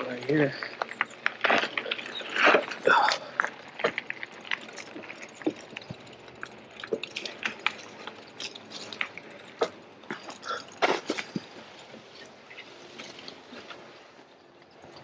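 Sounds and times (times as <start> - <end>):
bike jolting over bumps: 0.0 - 15.0
bike tyres rattling on gravel: 0.0 - 15.0.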